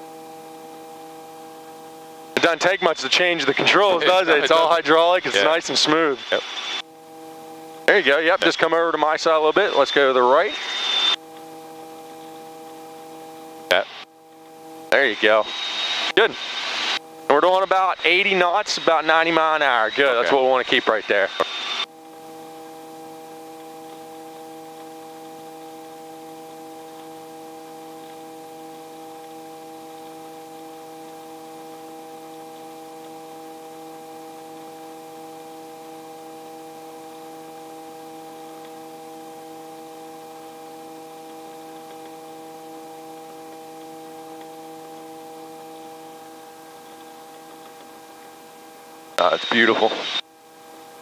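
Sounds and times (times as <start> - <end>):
helicopter hum through intercom: 2.4 - 6.6, 7.9 - 10.7, 17.3 - 21.5, 49.2 - 50.1.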